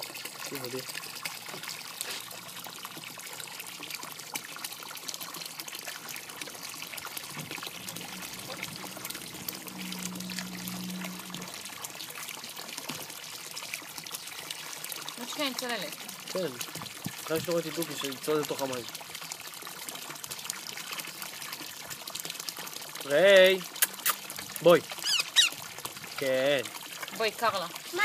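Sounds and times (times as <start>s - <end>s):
water pouring into pond: 0.0s - 28.0s
low steady hum: 6.8s - 11.8s.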